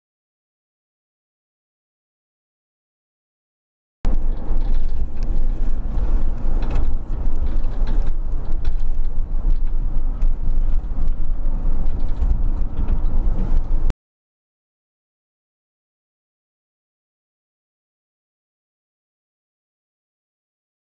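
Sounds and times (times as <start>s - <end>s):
light rattles: 4.1s - 13.9s
van engine and tyre rumble: 4.1s - 13.9s.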